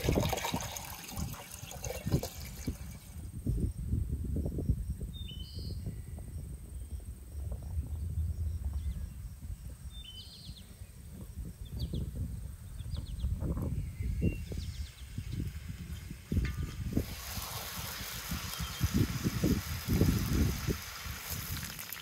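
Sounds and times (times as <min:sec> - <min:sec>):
low rumble: 0:06.1 - 0:13.4
small birds chirping: 0:18.4 - 0:19.1.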